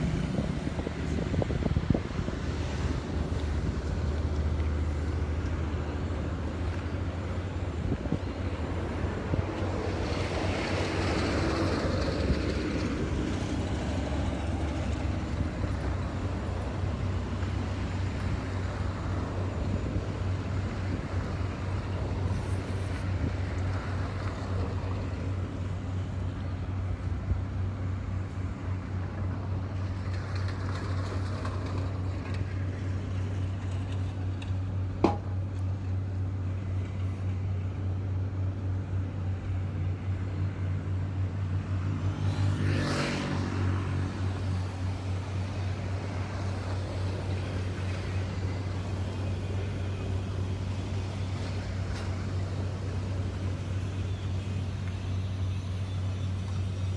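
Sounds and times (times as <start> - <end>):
car driving slowly: 0.0 - 56.9
traffic: 0.0 - 56.9
vehicle passing: 41.8 - 53.9.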